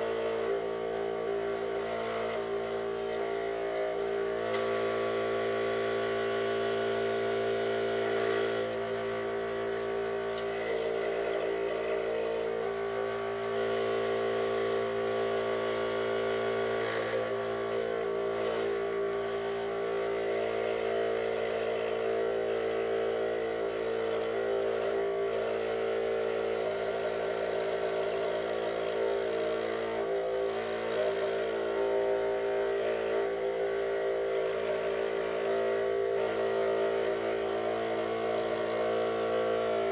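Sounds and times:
scroll saw motor humming: 0.0 - 39.9.

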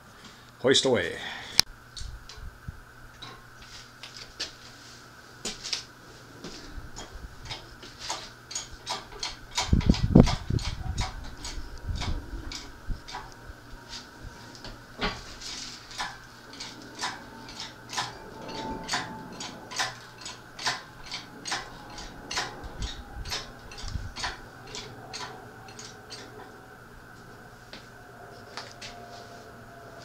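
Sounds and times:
hydraulic hoist lever clicking: 18.9 - 26.3.

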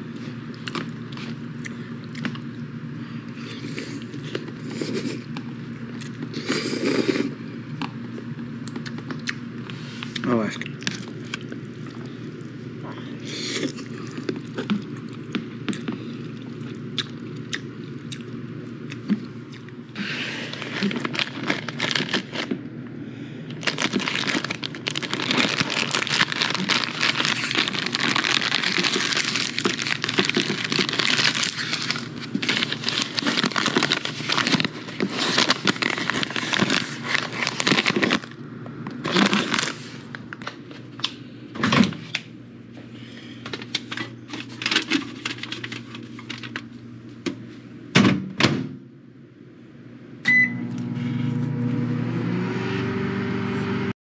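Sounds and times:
plastic bag crinkling: 20.3 - 22.6, 23.5 - 40.5, 43.6 - 46.7
microwave keypad beep: 50.2 - 50.7.

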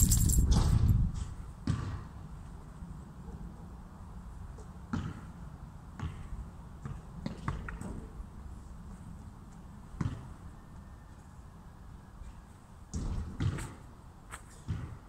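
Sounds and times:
steady low rumble: 0.0 - 1.2.

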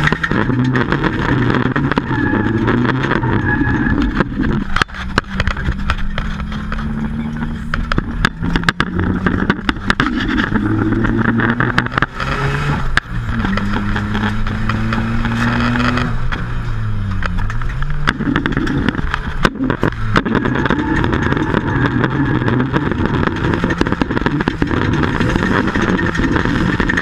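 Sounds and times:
tyre squeal: 0.0 - 14.5, 17.5 - 27.0
car engine revving hard: 0.0 - 27.0.

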